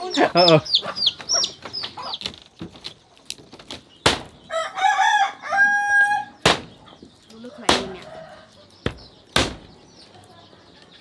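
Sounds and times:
chickens calling: 0.0 - 11.0
rooster crowing: 4.5 - 6.4, 7.8 - 8.6.

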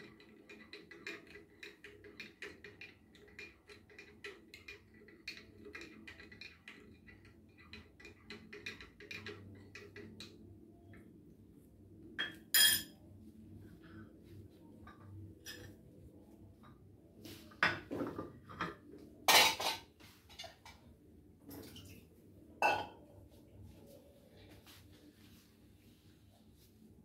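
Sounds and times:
spoon clinking on teacup: 12.2 - 13.0, 22.6 - 23.0.

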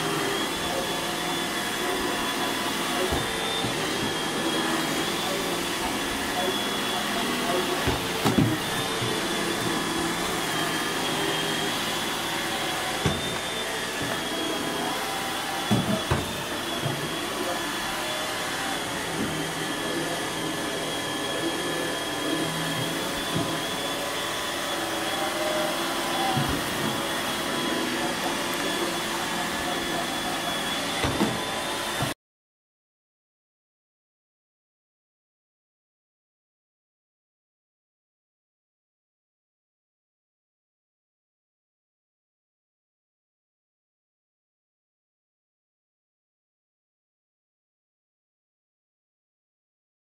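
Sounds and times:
appliance motor whirring: 0.1 - 32.1.

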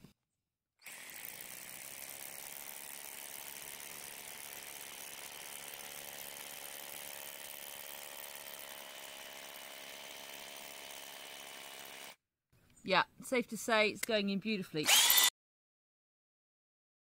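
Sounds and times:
hammer drill boring into concrete: 0.8 - 12.2, 14.8 - 15.3.

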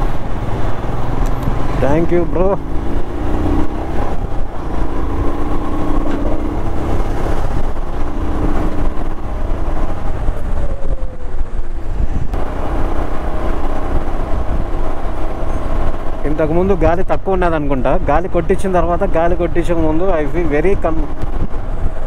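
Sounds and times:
motorcycle engine running: 0.0 - 17.5
road noise: 0.0 - 22.0
wind noise: 0.0 - 22.0.

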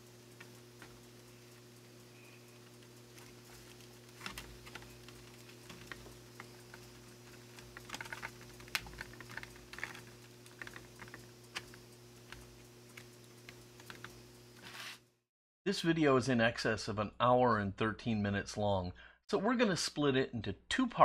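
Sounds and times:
low electrical hum: 0.0 - 18.8
plastic parts clicking and tapping: 3.1 - 14.2.

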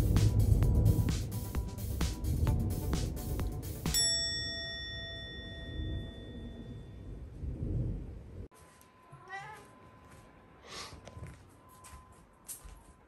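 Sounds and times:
low rumble: 0.0 - 3.9, 5.5 - 8.5
bright chime: 3.9 - 7.1
cat meowing: 9.1 - 9.8.

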